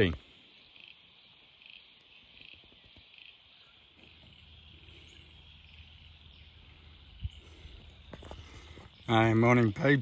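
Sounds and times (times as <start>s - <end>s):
insects chirring: 0.0s - 10.0s.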